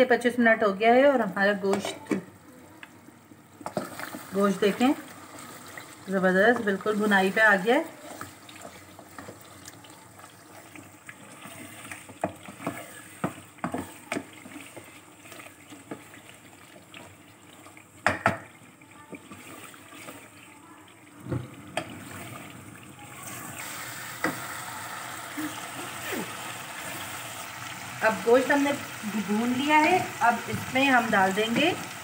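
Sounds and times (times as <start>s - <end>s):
wooden spoon knocking pot: 18.0s - 18.5s
paste sizzling in oil: 23.0s - 32.0s.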